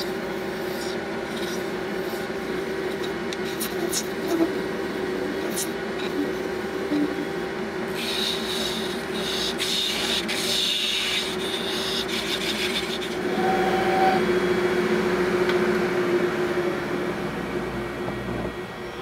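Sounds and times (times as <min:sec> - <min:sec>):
lathe motor hum: 0:00.2 - 0:19.0
turning tool scraping resin: 0:08.0 - 0:14.2.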